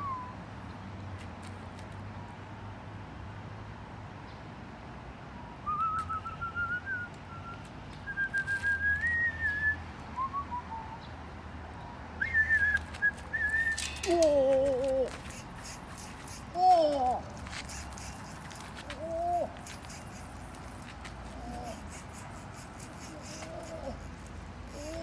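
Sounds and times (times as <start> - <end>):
man whistling a tune: 0.0 - 0.4, 5.6 - 11.0, 12.2 - 14.1.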